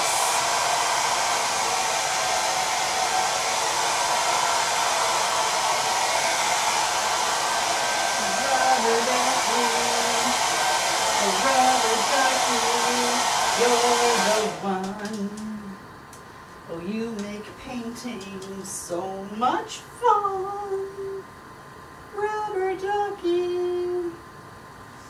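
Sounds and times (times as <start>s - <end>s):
hair dryer blowing: 0.0s - 15.6s.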